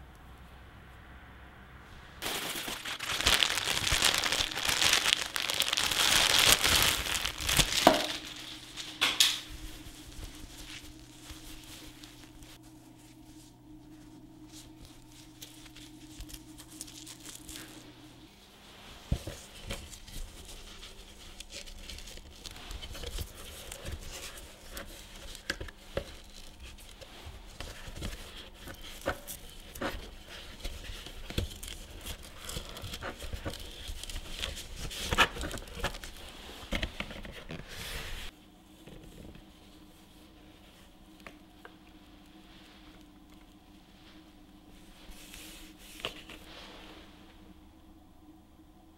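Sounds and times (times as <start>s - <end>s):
faint steady hum: 0.0s - 48.9s
fabric rustling and scratching: 2.2s - 40.9s.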